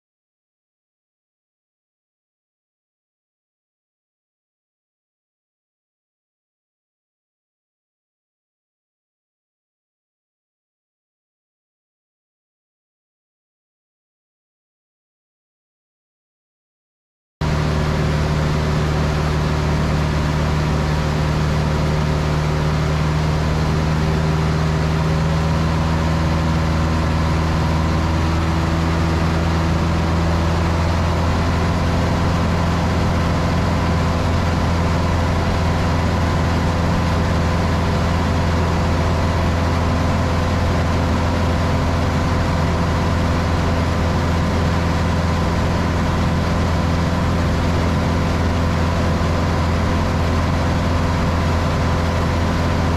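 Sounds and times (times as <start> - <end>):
light aircraft engine and propeller: 17.4 - 52.9.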